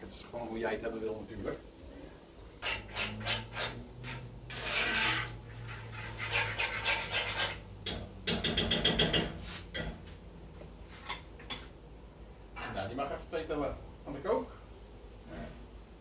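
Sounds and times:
spoon scraping a pot: 2.6 - 10.0.

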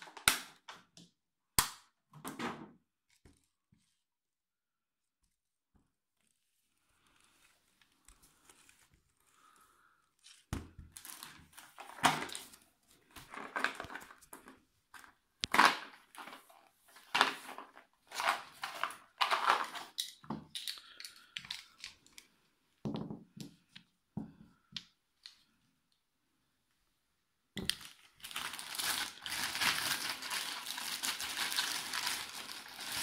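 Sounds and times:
plastic wrapping crinkling: 6.2 - 22.3, 27.6 - 33.0.

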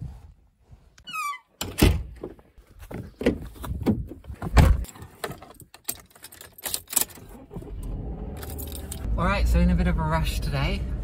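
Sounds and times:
keys jangling: 5.7 - 7.2, 8.4 - 9.1.

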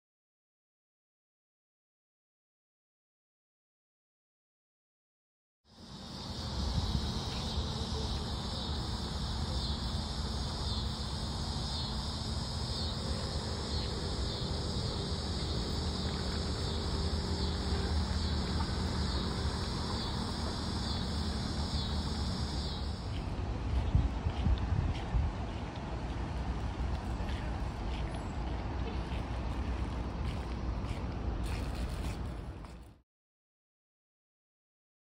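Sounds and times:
cicadas buzzing: 5.7 - 32.3.

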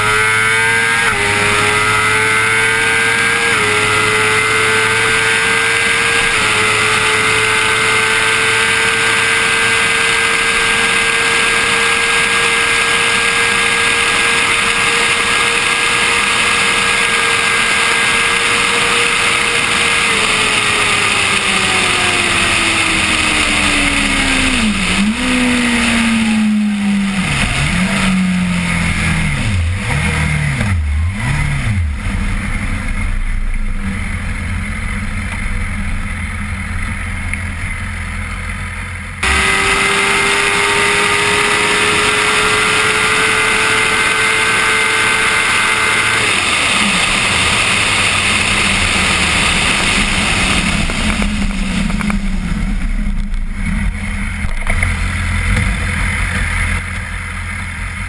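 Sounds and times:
motorcycle engine revving: 0.0 - 58.0
loud wind roar: 39.2 - 57.3.

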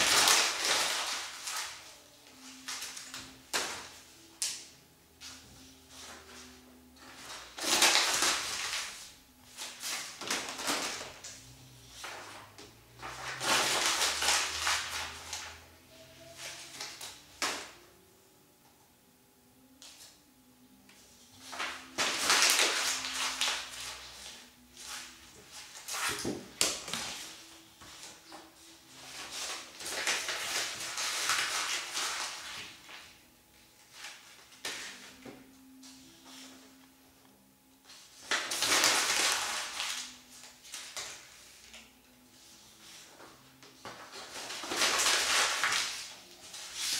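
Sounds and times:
paper crumpling: 0.0 - 3.3, 5.9 - 9.0, 13.0 - 15.6, 21.4 - 33.1, 37.9 - 41.8, 43.8 - 46.9.

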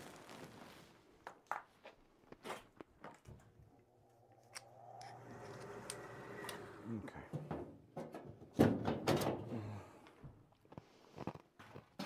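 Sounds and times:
furnace motor hum: 3.7 - 7.6.

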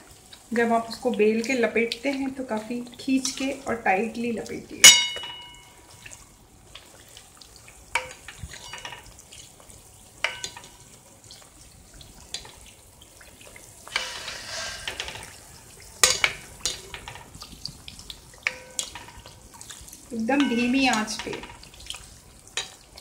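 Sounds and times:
pastries sizzling in oil: 0.0 - 23.0
metal ladle clinking on pan: 4.8 - 5.8, 8.0 - 9.1, 10.2 - 10.8, 16.0 - 17.2, 18.4 - 19.2, 20.3 - 21.6.

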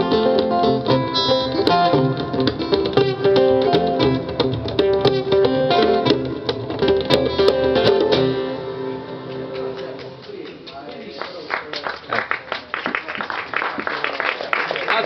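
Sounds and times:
acoustic guitars playing: 0.0 - 10.7.

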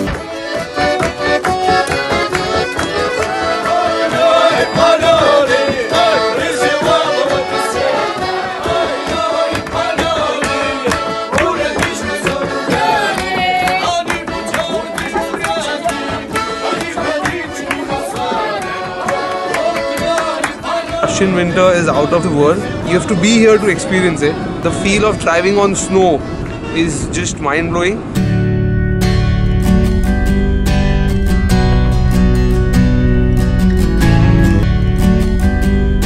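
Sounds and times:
accordion playing lively tune: 0.0 - 27.4, 28.1 - 36.0
women singing: 3.4 - 21.3.

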